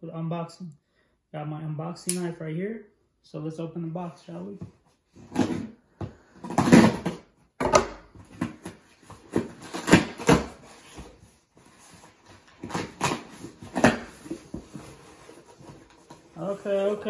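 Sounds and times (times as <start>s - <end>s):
knife cutting cardboard box: 8.3s - 16.3s
cardboard tearing and rustling: 8.4s - 16.5s.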